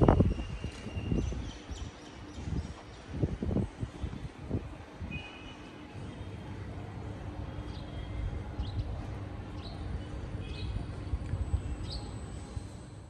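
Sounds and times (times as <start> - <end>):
steady low rumble: 6.3 - 13.0.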